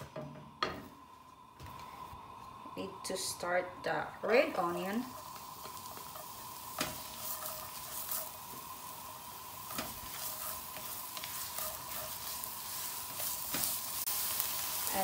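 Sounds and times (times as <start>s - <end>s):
onion sizzling in frying pan: 0.0s - 15.0s
spatula scraping and tapping pan: 5.0s - 8.8s, 9.6s - 13.9s.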